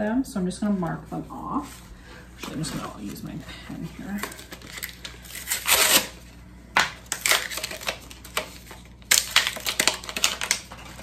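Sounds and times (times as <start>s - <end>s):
crinkling crackling handling noise: 2.4s - 11.0s.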